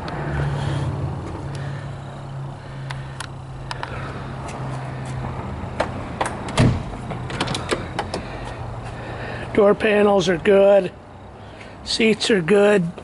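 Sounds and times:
car engine idling: 0.0s - 13.0s
car door clicks and thumps: 5.8s - 8.3s.

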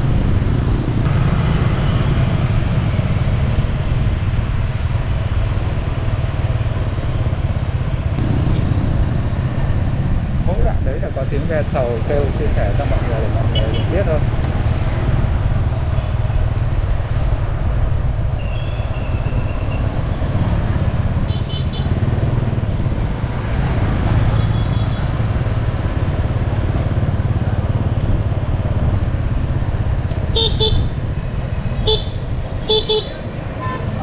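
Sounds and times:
motorbike engine and wind rumble: 0.0s - 34.0s
vehicle horn toots: 30.3s - 30.9s, 31.8s - 33.8s.

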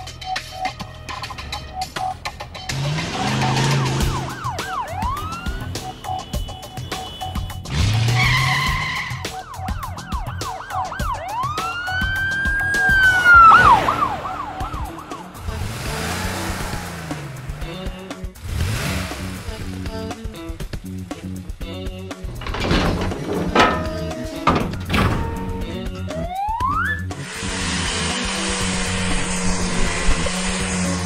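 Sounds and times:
background music: 0.0s - 31.0s
tyres skidding: 0.1s - 31.0s
car engines revving: 0.7s - 31.0s
cartoon police siren wailing: 3.2s - 5.8s, 8.4s - 15.5s, 26.1s - 27.2s.

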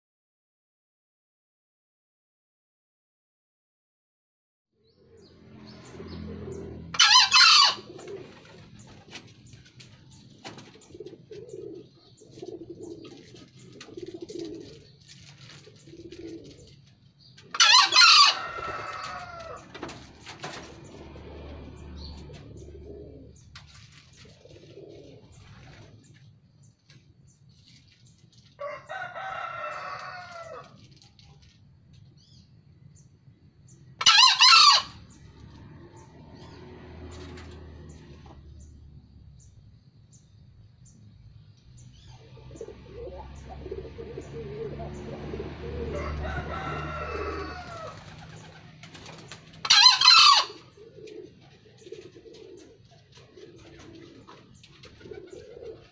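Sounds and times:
junglefowl crowing: 6.5s - 8.3s, 17.5s - 20.0s, 28.6s - 30.8s, 34.0s - 37.6s, 45.6s - 48.6s, 49.6s - 51.2s.

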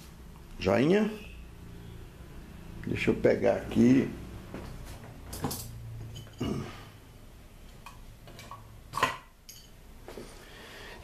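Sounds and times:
air conditioner unit humming: 0.0s - 11.0s
handling clicks and knocks: 5.3s - 6.4s.

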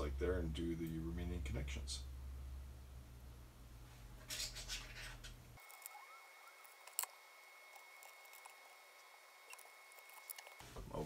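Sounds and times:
faint steady whine: 0.0s - 4.2s, 5.1s - 11.0s
background hum: 0.0s - 11.0s
tweezers scratching and clicking: 6.6s - 7.1s, 7.7s - 8.8s, 9.5s - 10.6s.

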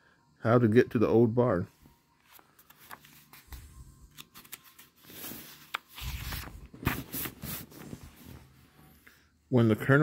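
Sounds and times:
book page turning: 2.2s - 8.6s.

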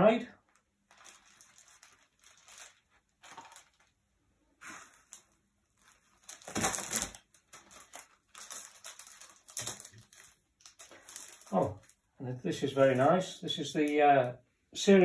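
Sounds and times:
plastic wrapping crinkling: 0.4s - 4.1s, 4.8s - 13.2s.

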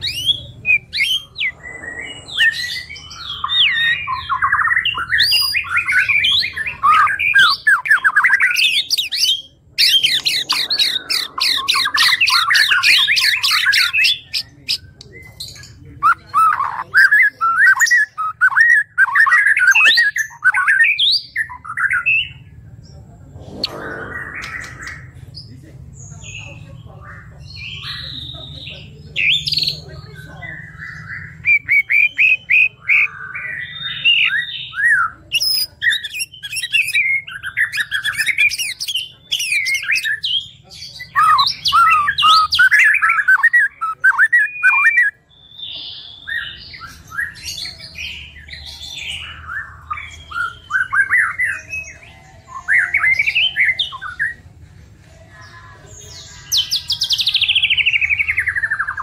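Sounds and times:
bird singing whistled song: 41.1s - 52.0s.

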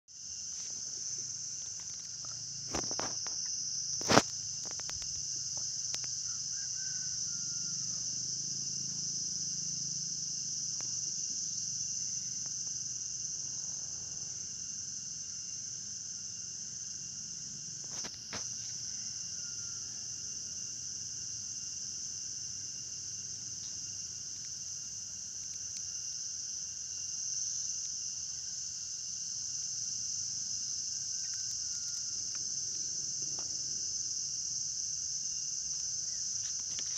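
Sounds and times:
insects chirring: 0.1s - 36.9s.

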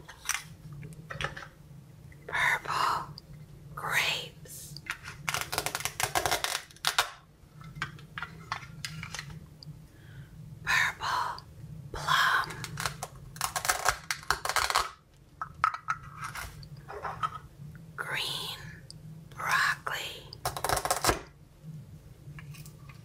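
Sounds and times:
plastic pieces clicking: 4.9s - 9.4s, 12.6s - 16.5s.

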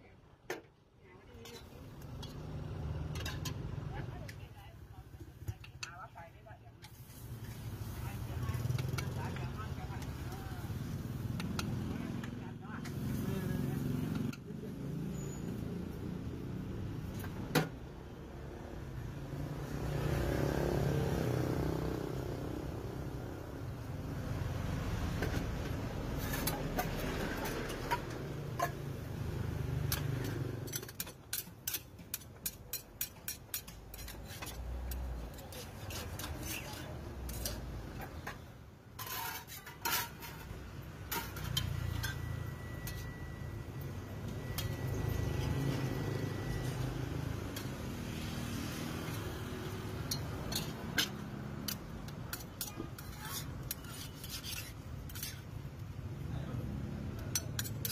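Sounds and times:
street traffic rumble: 0.0s - 57.9s
metal lids and pans clinking: 1.4s - 3.8s, 25.2s - 45.8s, 49.0s - 55.6s, 57.2s - 57.9s.

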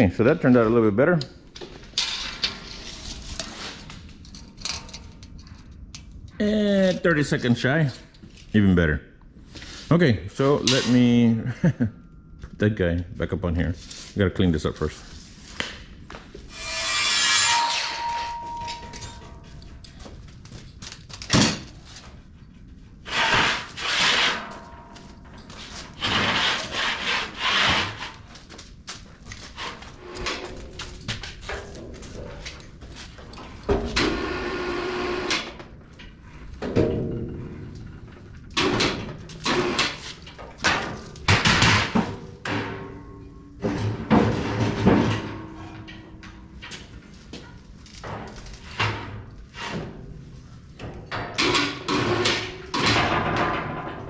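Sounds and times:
rasping scraping on steel: 16.4s - 18.6s, 25.9s - 28.3s.

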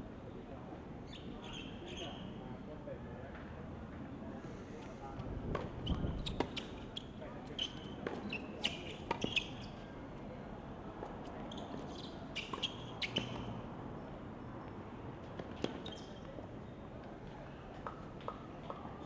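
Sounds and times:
sneaker squeaks: 5.8s - 9.8s, 11.4s - 13.6s, 15.4s - 16.4s.

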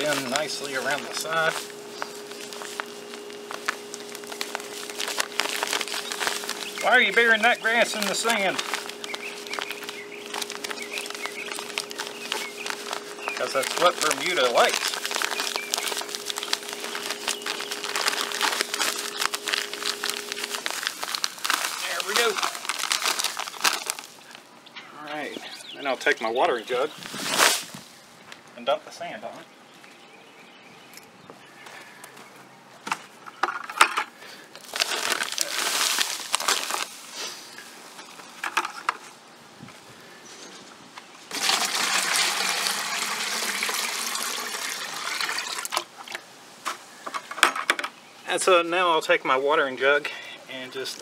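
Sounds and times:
sand bag crinkling and rustling: 0.0s - 24.5s, 25.1s - 28.1s, 34.2s - 39.2s, 40.3s - 47.1s, 50.6s - 51.0s
low background hum: 0.0s - 51.0s.

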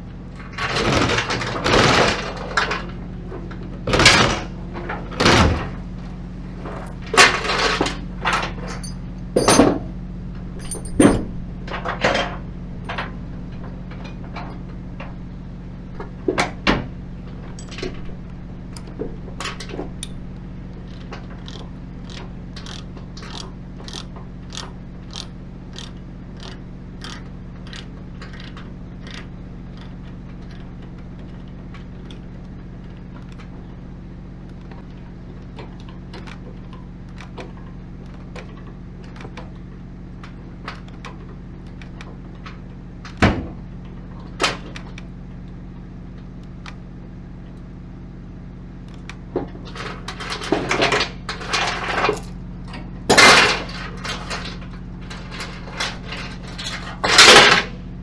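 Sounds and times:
steady low hum: 0.0s - 58.0s
sharp metal knocks: 8.8s - 9.9s, 10.6s - 11.4s
metal clattering: 10.6s - 12.4s
ratchet clicking: 20.9s - 33.4s.

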